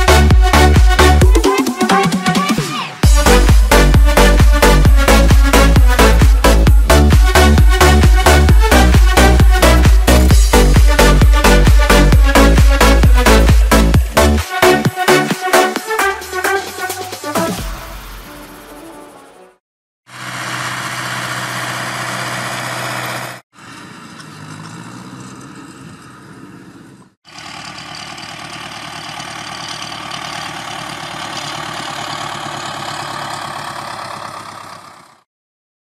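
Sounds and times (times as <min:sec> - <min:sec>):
tractor diesel engine running: 0:02.7 - 0:14.8, 0:20.1 - 0:35.3.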